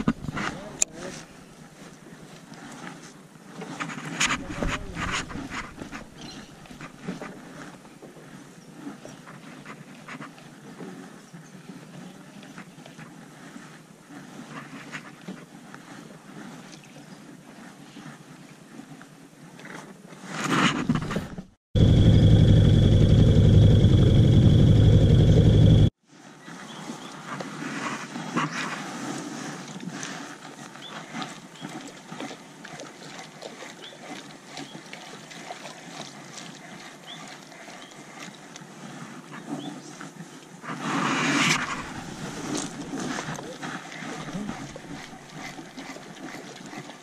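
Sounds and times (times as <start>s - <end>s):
motor hum with high whine: 21.8s - 25.9s.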